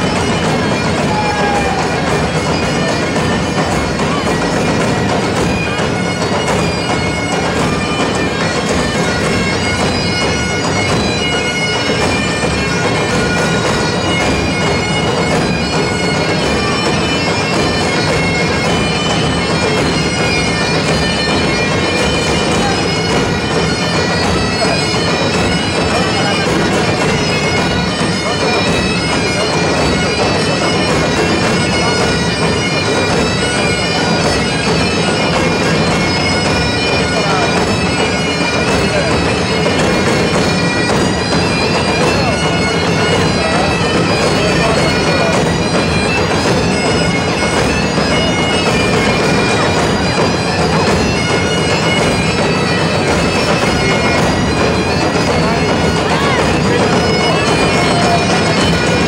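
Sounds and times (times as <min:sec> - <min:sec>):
bagpipes playing a tune: 0:00.0 - 0:59.0.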